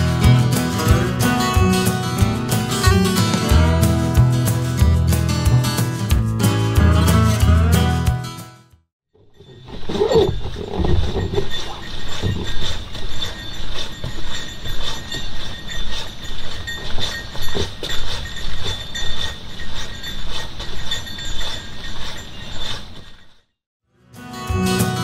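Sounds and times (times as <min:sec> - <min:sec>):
canoe hull knocking and creaking: 0:09.2 - 0:18.7.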